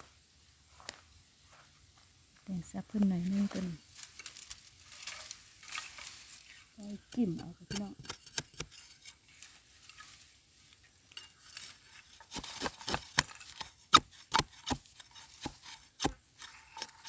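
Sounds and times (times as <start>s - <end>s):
digging blade chopping into earth: 7.1s - 9.1s, 11.6s - 17.0s.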